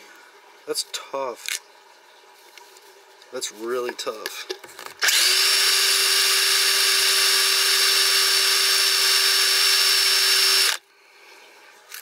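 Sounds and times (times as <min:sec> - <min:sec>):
electric drill drilling metal: 0:05.0 - 0:10.8.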